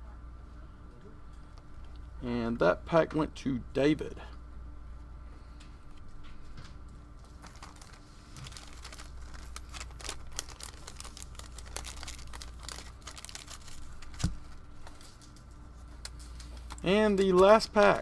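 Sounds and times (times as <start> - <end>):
foil wrapper tearing and crinkling: 7.3 - 15.4.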